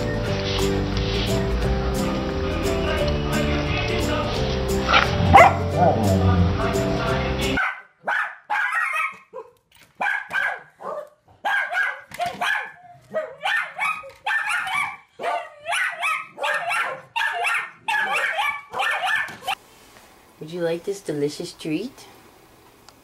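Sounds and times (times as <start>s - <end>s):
dog barking sharply: 5.3s - 6.0s, 7.6s - 19.6s.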